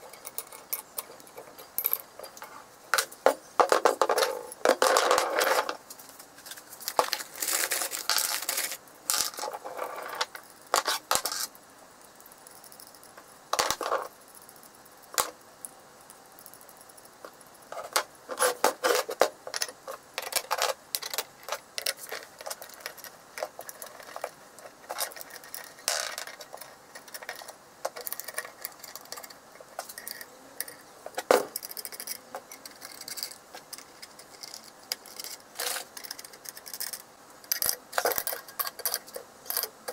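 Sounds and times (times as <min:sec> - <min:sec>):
steel rods and nuts clinking: 0:00.0 - 0:05.7.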